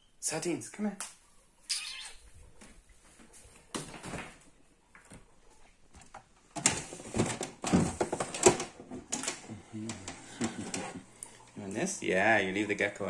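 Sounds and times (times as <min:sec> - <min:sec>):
plastic knocks and rustling: 0:03.7 - 0:05.3, 0:05.9 - 0:11.1.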